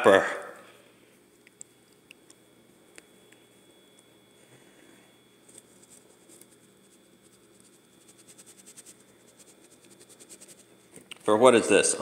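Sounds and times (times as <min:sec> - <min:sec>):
spice shaker rapid ticking: 0:05.8 - 0:10.8.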